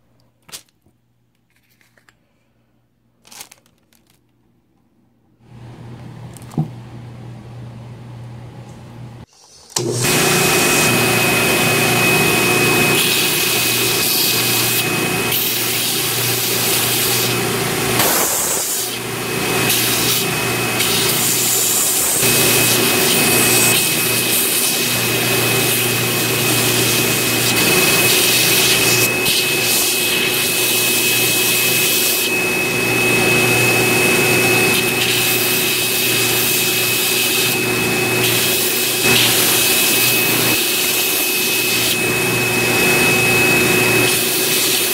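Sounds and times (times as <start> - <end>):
belt sander grinding wood: 9.8 - 44.9.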